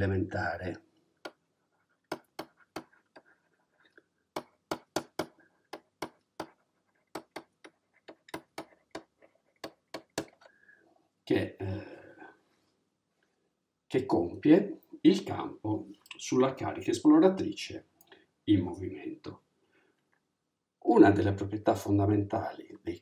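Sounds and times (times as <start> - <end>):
man speaking: 0.0 - 0.8, 11.3 - 12.3, 13.9 - 17.9, 18.5 - 19.4, 20.8 - 23.0
faint pen scratching: 1.6 - 4.3, 6.4 - 9.9
stylus tapping on tablet: 2.1 - 3.0, 4.3 - 10.5.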